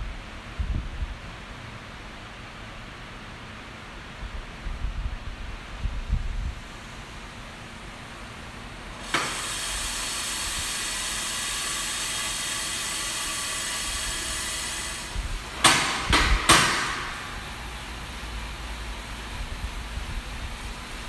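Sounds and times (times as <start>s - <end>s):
coffee roaster air hissing: 5.0s - 21.0s
loud knocks: 15.6s - 17.2s.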